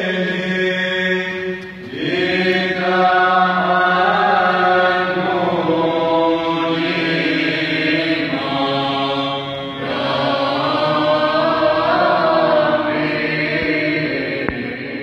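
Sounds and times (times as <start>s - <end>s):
choir chanting a hymn: 0.0s - 15.0s.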